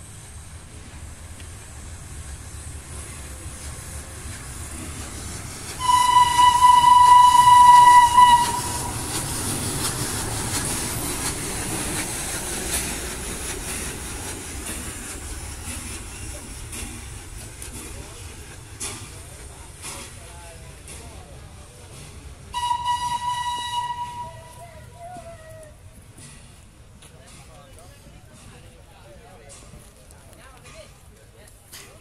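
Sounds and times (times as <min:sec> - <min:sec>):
steam hissing: 0:00.0 - 0:24.4
locomotive running on track: 0:00.0 - 0:32.0
steam whistle blast: 0:05.8 - 0:09.0, 0:22.5 - 0:24.6.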